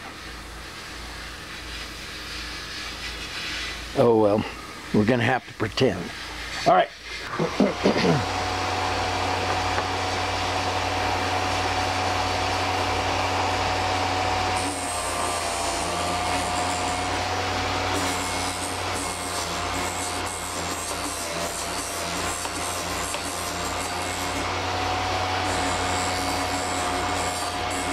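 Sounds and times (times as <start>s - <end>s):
motor humming: 7.2s - 27.9s
drill bit grinding: 7.6s - 27.9s.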